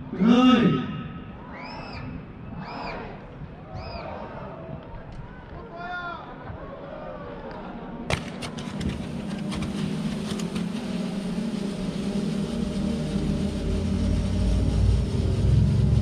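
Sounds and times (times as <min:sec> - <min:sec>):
firework fountains rushing roar: 0:08.1 - 0:16.0
deep rumble: 0:08.4 - 0:16.0.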